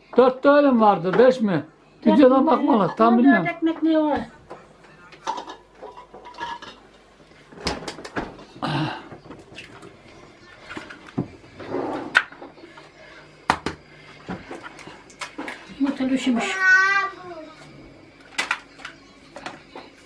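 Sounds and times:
dishes and utensils clattering: 5.2s - 16.0s.

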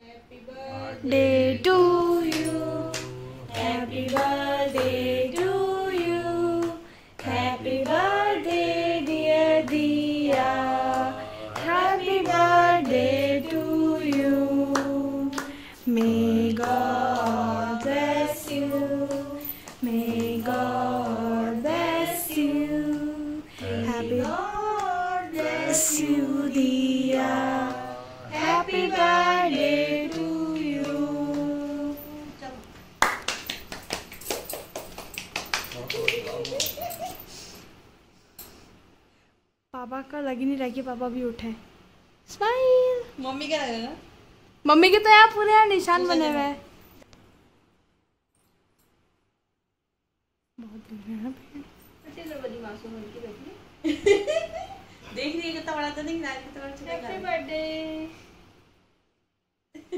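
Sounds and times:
woman singing: 0.0s - 32.6s.

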